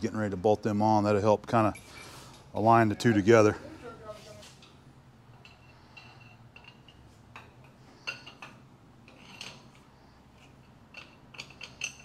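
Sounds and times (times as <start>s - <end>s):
low steady hum: 0.0s - 12.0s
metal tools clinking: 1.7s - 2.6s, 4.3s - 9.8s, 10.4s - 12.0s.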